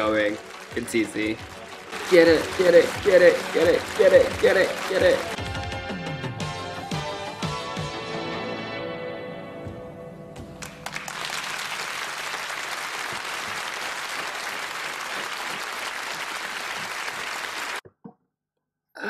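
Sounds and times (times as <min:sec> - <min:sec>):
audience applauding: 0:00.0 - 0:05.4, 0:10.6 - 0:17.8
stage music: 0:00.0 - 0:17.8.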